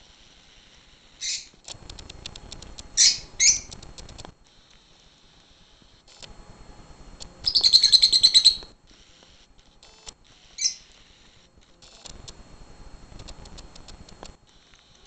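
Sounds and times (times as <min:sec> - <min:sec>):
birds chirping: 0:01.2 - 0:01.5, 0:02.9 - 0:03.8, 0:07.4 - 0:08.7, 0:10.6 - 0:10.9
faint clicks and rustling: 0:01.5 - 0:03.0, 0:03.6 - 0:06.4, 0:10.9 - 0:15.0.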